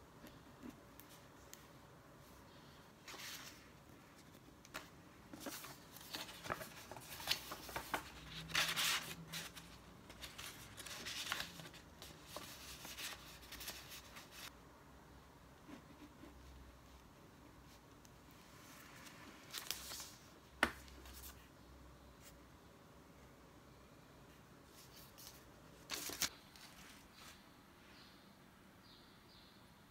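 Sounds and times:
paper rustling and crinkling: 3.0s - 14.5s, 18.7s - 21.4s, 24.8s - 27.4s.

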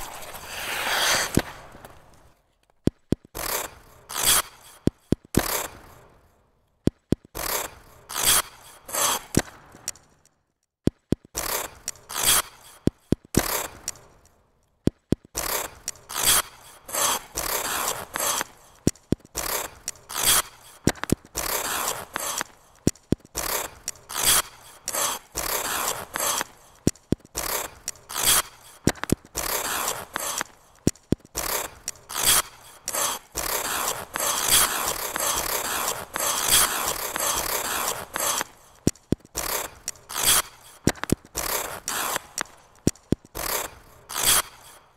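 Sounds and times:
skate blades scraping ice: 0.0s - 2.6s, 3.4s - 6.4s, 7.4s - 10.1s, 11.4s - 14.3s, 15.4s - 44.9s
blade clicking on ice: 0.0s - 6.3s, 6.9s - 44.9s.

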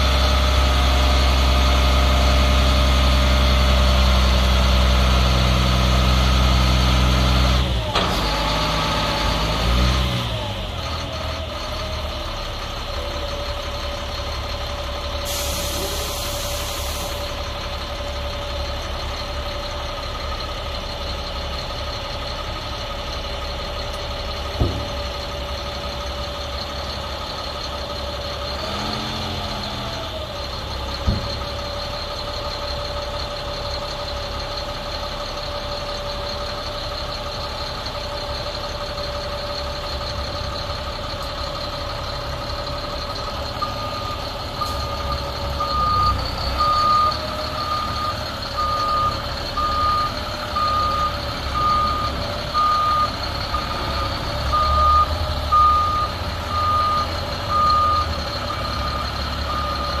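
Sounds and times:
diesel truck engine running: 0.0s - 60.0s.

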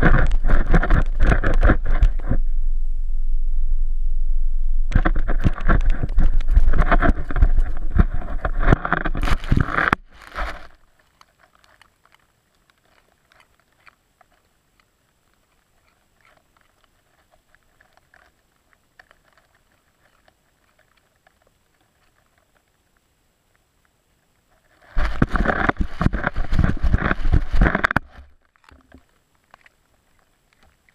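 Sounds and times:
dog crunching a carrot: 4.9s - 22.7s, 25.0s - 30.9s
faint ticks: 10.7s - 25.0s.

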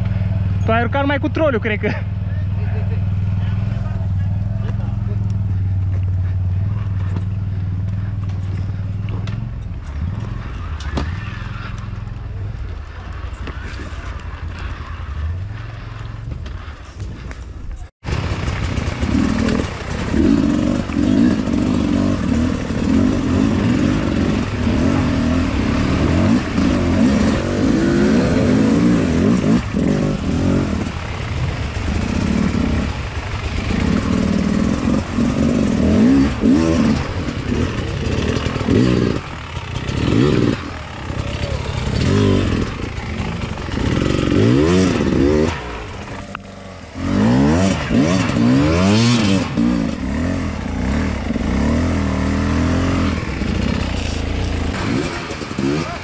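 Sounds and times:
two-stroke motorbike engine revving: 18.1s - 56.0s.

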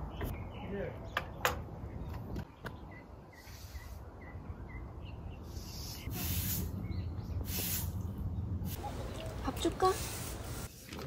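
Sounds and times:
bird chirping: 0.0s - 6.1s, 6.7s - 7.6s
bursts of hiss: 5.5s - 6.8s, 7.4s - 8.0s.

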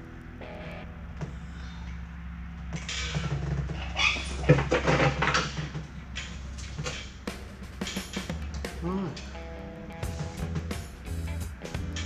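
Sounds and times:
steady low hum: 0.0s - 12.0s
metal clanking and rattling: 2.6s - 8.8s.

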